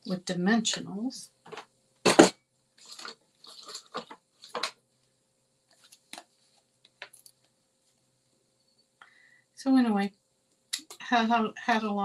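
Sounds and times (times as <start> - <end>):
paper and plastic rustling: 2.8 - 4.8, 5.7 - 7.4.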